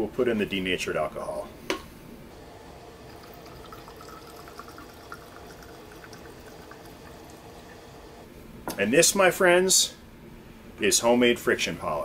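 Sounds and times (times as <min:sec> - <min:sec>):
liquid trickling into bottle: 0:03.0 - 0:07.9.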